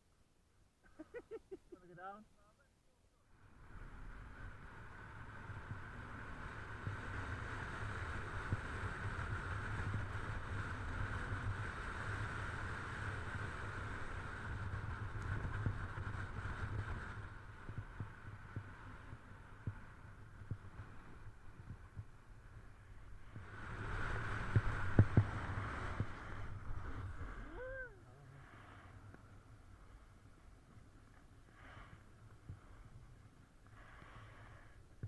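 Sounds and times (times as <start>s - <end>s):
boards sliding over snow: 3.4s - 35.0s
wind buffeting microphone: 14.2s - 28.0s.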